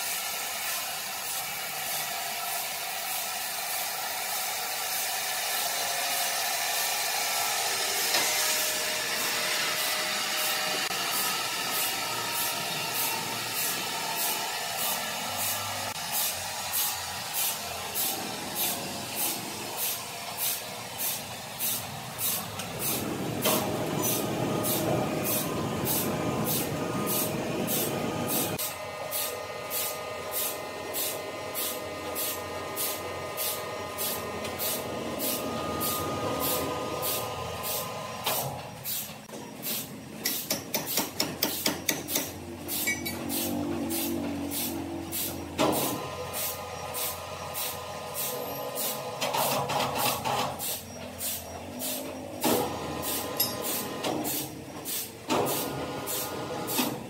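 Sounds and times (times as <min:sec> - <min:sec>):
sawmill machinery whining: 0:00.0 - 0:39.3, 0:42.3 - 0:54.7.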